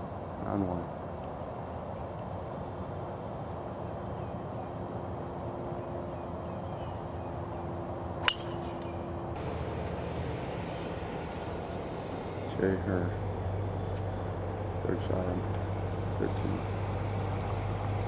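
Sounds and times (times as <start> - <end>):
steady background hiss: 0.0 - 18.0
golf driver striking ball: 8.2 - 9.1.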